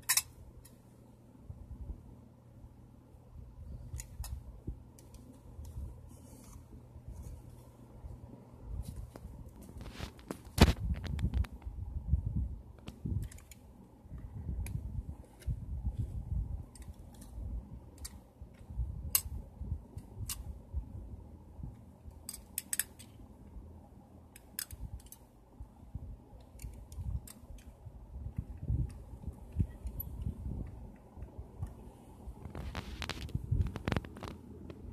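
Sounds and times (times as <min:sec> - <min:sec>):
toy truck arms clicking: 0:22.2 - 0:23.1, 0:24.4 - 0:25.2.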